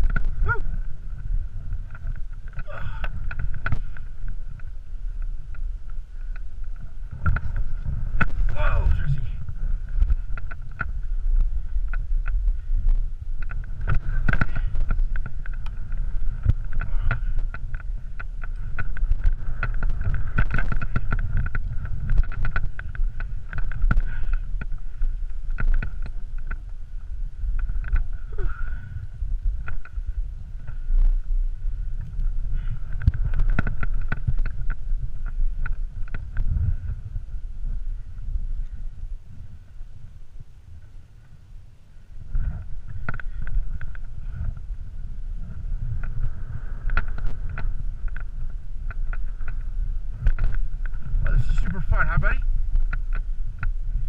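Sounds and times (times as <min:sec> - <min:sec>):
wind buffeting microphone: 0:00.0 - 0:54.0
small clicks and knocks: 0:10.0 - 0:26.8, 0:29.6 - 0:30.0, 0:32.0 - 0:36.5, 0:42.5 - 0:44.5, 0:46.8 - 0:51.0.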